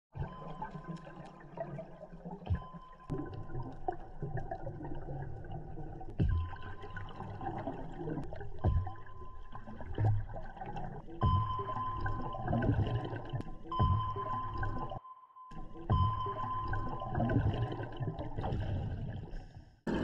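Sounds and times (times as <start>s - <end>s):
low underwater thumps: 6.1s - 6.8s, 8.6s - 9.3s, 11.2s - 14.9s, 15.9s - 17.7s.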